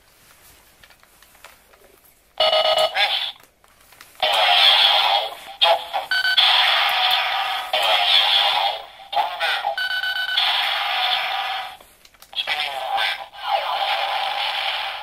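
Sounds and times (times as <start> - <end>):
harsh electronic effect: 4.2 - 11.8
toy electronic chime: 9.8 - 10.5.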